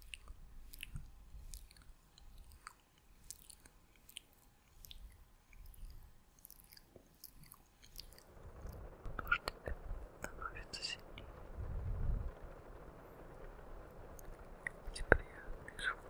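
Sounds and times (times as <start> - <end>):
wet mouth clicks and lip smacks: 0.0 - 8.2.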